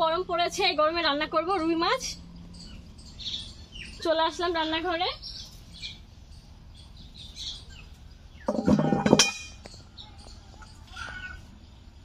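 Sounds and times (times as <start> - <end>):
birds chirping faintly: 0.0 - 12.0
utensils clattering: 8.5 - 9.7
ringing metallic clink: 8.5 - 10.9.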